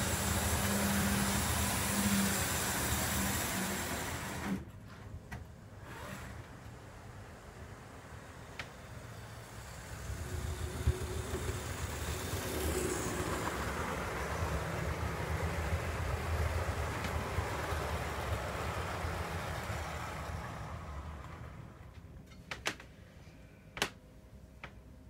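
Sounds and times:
model train running on track: 0:00.0 - 0:04.6, 0:07.0 - 0:22.0.

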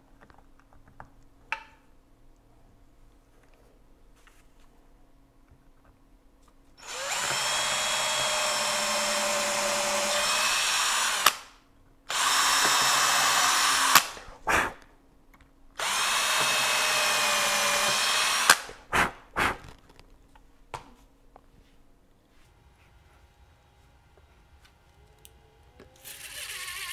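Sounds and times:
cordless drill drilling wood: 0:06.8 - 0:11.5, 0:12.1 - 0:14.2, 0:15.8 - 0:18.8
drill click: 0:06.8 - 0:11.5, 0:12.1 - 0:14.3, 0:15.8 - 0:18.8
drill trigger blips: 0:06.8 - 0:11.5, 0:12.1 - 0:14.2, 0:15.8 - 0:18.8.

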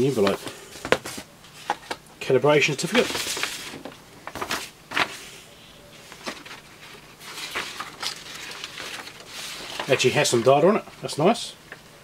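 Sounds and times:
paper rustling: 0:02.7 - 0:05.4, 0:06.0 - 0:10.7.

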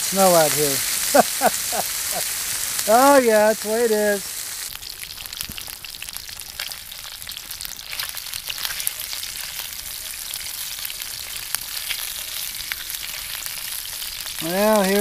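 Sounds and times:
bacon sizzling and popping: 0:00.0 - 0:15.0
spatula stirring in skillet: 0:07.4 - 0:14.8.

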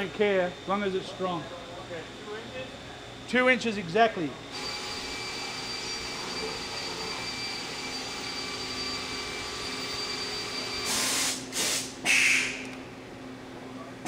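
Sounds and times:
machine shop equipment hum: 0:00.0 - 0:14.0
high-pitched whine: 0:04.5 - 0:11.3
short loud hiss bursts: 0:10.9 - 0:12.5.

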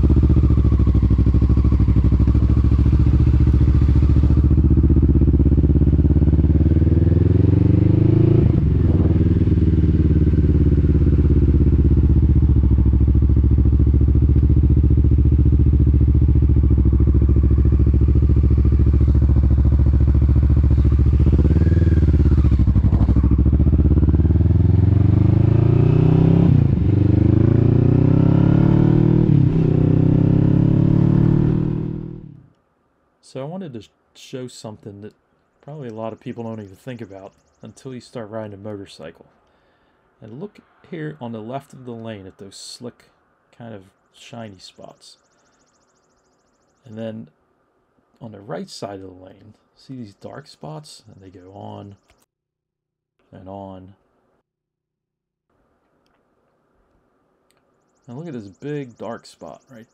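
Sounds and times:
motorcycle engine accelerating: 0:00.0 - 0:32.5.

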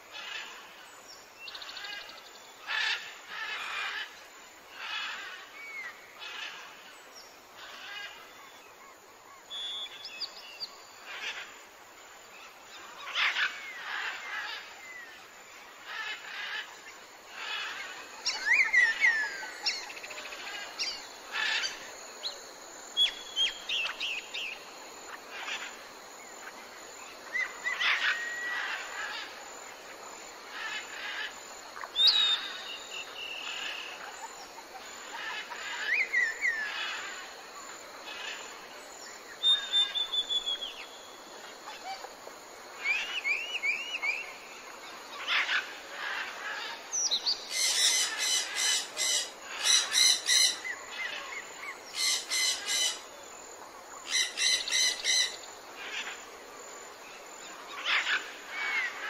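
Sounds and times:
faint outdoor hiss: 0:00.0 - 0:59.0
birds chirping and trilling: 0:01.4 - 0:07.0, 0:07.6 - 0:11.5, 0:12.4 - 0:42.1, 0:42.7 - 0:53.1, 0:54.0 - 0:56.3, 0:57.1 - 0:59.0.

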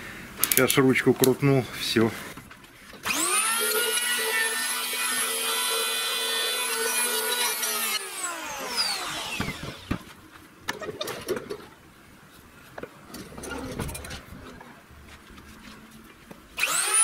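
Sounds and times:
electric hand planer whining: 0:03.0 - 0:10.0, 0:16.6 - 0:17.0.

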